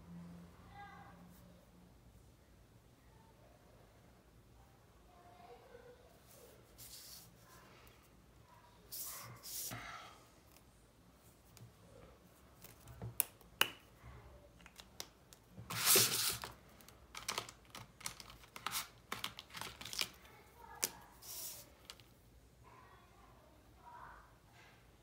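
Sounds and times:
pen clicks: 14.6 - 20.2
paper rustling: 15.6 - 22.0.

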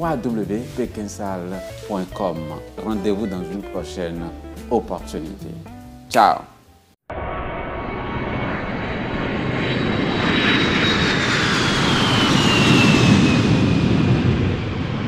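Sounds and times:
high whine falling in pitch: 7.1 - 15.0
jet engine roar: 7.1 - 15.0.

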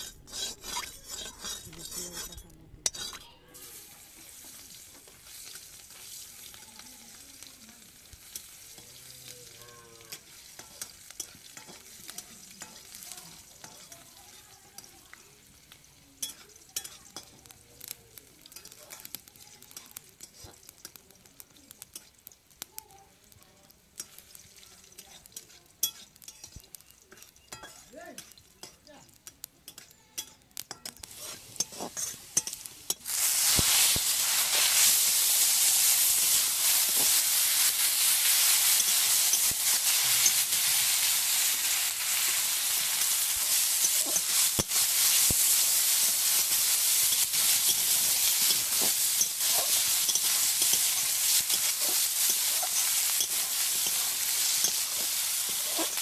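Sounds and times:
metal spatula scraping pan: 0.0 - 3.7, 24.9 - 56.0
oil sizzling in a wok: 0.0 - 56.0.

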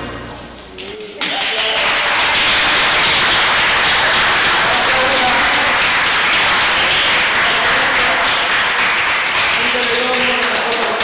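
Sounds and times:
crowd applauding: 0.8 - 11.0.

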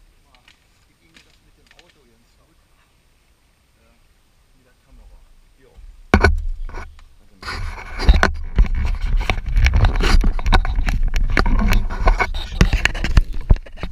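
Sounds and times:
sharp knock on camera: 6.1 - 6.5
rubbing and scraping on microphone: 6.1 - 13.9.

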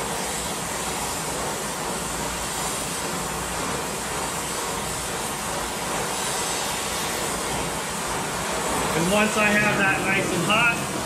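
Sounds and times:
torch flame hissing: 0.0 - 11.0.

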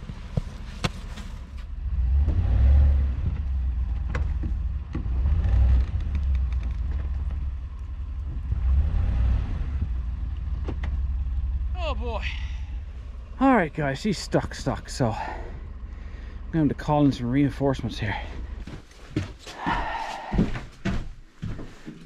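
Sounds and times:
pickup truck engine revving: 1.8 - 3.4, 8.2 - 10.5.

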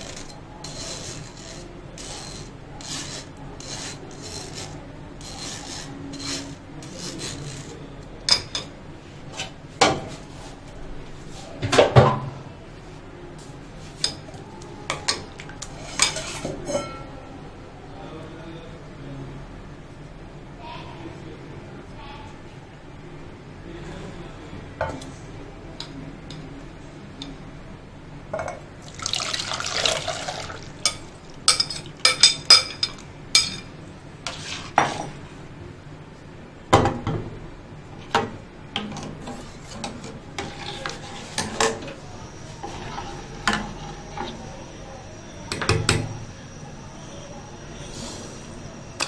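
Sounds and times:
spoon scraping and clinking: 0.0 - 8.7, 15.0 - 17.0
puree pouring into saucepan: 28.8 - 31.4.

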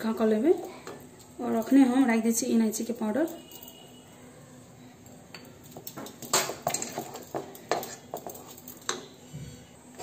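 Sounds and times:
wooden spatula scraping metal pan: 6.4 - 9.6.

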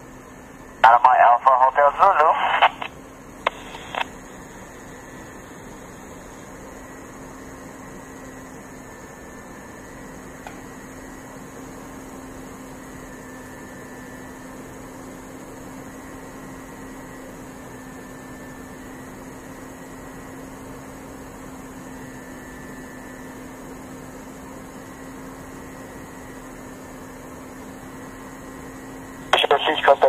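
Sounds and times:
constant low hum: 0.0 - 30.0
radio static hiss: 0.8 - 4.1, 29.3 - 30.0.

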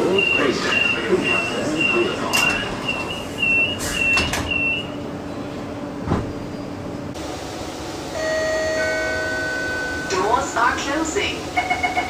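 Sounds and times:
door warning beeps: 0.0 - 5.0
train carriage hum: 0.0 - 12.0
electronic door chime: 0.1 - 4.9.

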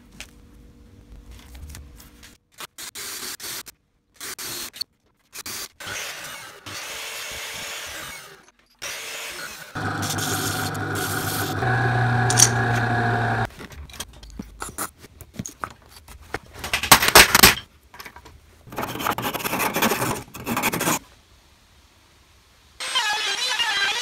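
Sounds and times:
electric disc sander running: 9.8 - 13.5.

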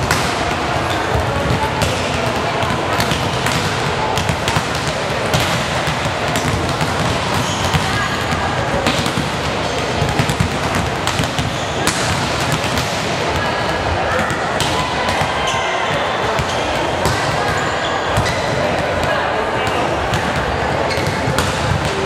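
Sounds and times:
volleyballs smacking and bouncing: 0.0 - 22.0.

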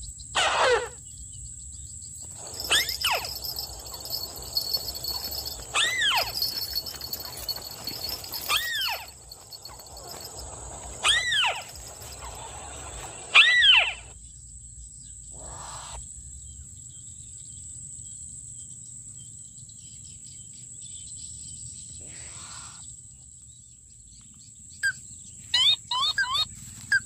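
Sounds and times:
crake whinny-like calls: 0.4 - 1.0, 2.2 - 14.2, 15.4 - 16.0, 25.6 - 27.0
faint steady high tone: 2.3 - 13.2.

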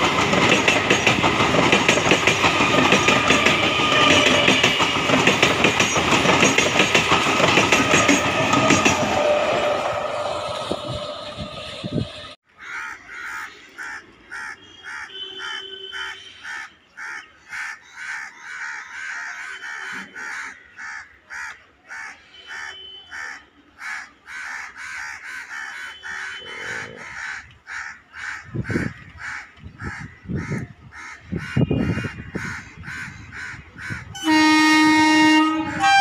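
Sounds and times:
train running past: 0.0 - 12.4, 31.8 - 36.0
crows cawing: 12.5 - 34.2.

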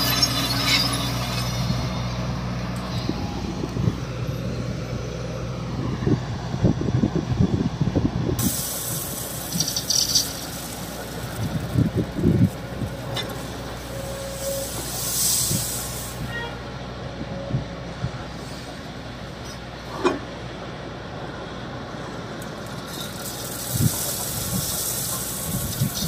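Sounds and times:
excavator diesel engine running: 0.0 - 26.0
hydraulic hiss: 8.4 - 11.2
gravel pouring into truck body: 8.4 - 16.2, 22.5 - 26.0.

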